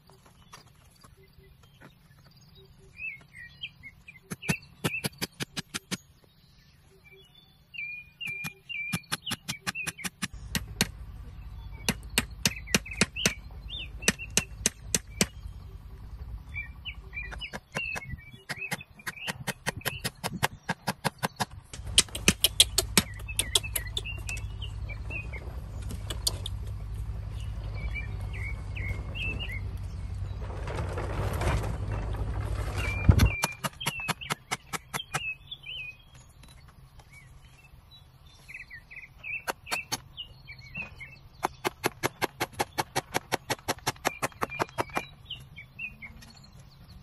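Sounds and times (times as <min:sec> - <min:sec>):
birds chirping: 0:00.0 - 0:47.0
hammer driving nails into bamboo: 0:04.3 - 0:06.0, 0:08.3 - 0:11.0, 0:11.8 - 0:13.4, 0:14.0 - 0:15.4, 0:17.3 - 0:24.0, 0:33.2 - 0:35.2, 0:41.4 - 0:45.1.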